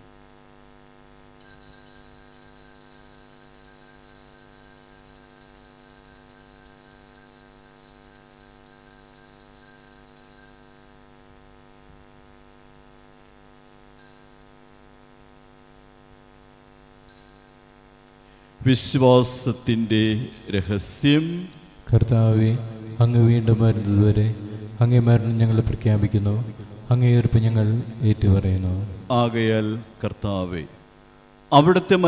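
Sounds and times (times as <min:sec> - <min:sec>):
small bell ringing: 0:00.8 - 0:11.5, 0:14.0 - 0:15.0, 0:17.1 - 0:18.2.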